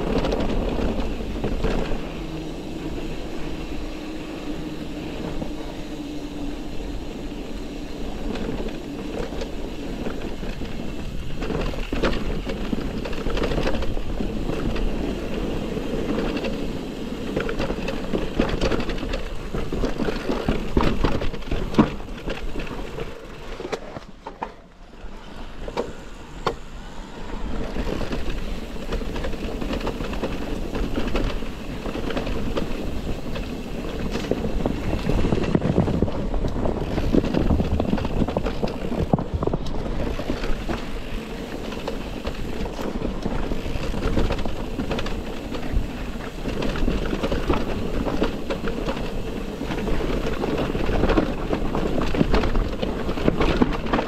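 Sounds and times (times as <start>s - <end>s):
wind on microphone: 0.0s - 24.2s, 25.0s - 54.0s
bike rattling over bumps: 0.0s - 54.0s.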